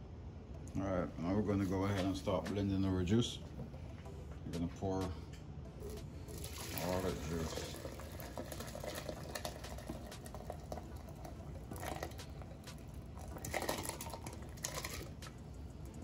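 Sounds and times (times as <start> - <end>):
vegetables and liquid pouring into blender: 6.3 - 15.2.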